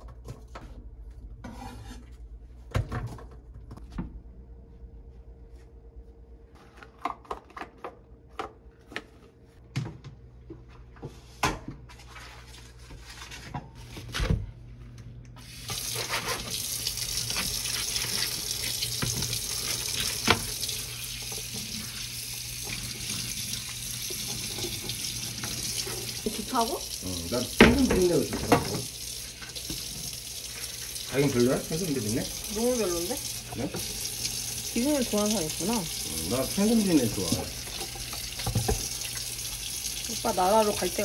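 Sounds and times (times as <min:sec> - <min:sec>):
water running into a steel sink: 0:15.4 - 0:41.0.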